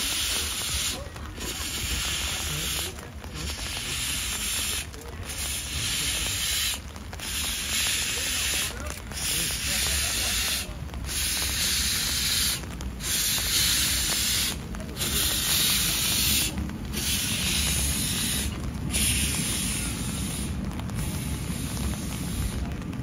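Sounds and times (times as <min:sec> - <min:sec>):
steam locomotive hissing: 0:00.0 - 0:23.0
low rumble: 0:10.4 - 0:23.0.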